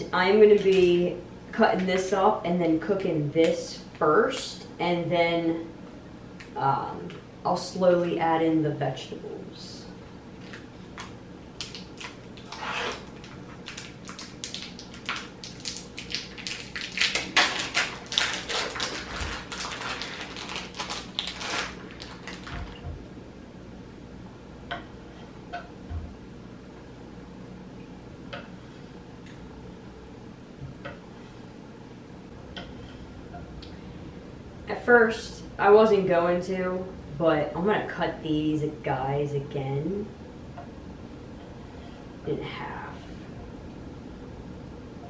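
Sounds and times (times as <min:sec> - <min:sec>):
plastic packaging crinkling: 0:10.4 - 0:22.8.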